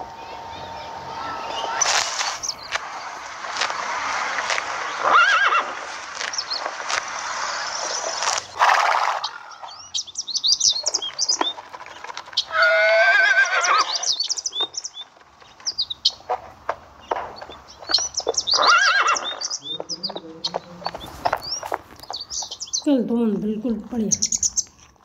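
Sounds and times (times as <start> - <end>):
steady rushing noise: 0.0 - 9.8
birds chirping: 0.0 - 25.0
horse whinnying: 4.2 - 6.3, 7.4 - 9.7, 12.5 - 14.3, 18.5 - 19.6.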